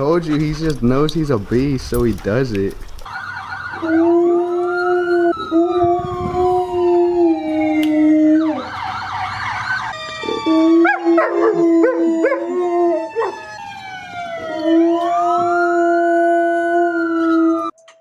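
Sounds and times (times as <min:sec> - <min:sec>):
dogs howling: 0:03.6 - 0:08.8, 0:10.1 - 0:17.7
husky howling: 0:03.7 - 0:08.8, 0:10.2 - 0:13.5, 0:14.3 - 0:17.7.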